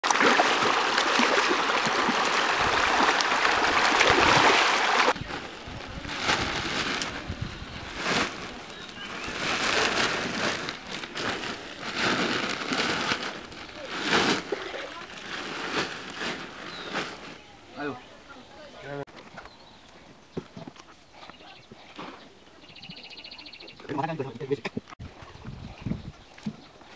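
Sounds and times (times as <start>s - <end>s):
fish splashing at water surface: 0.0s - 5.2s
plastic sacks rustling and knocking: 0.1s - 17.4s.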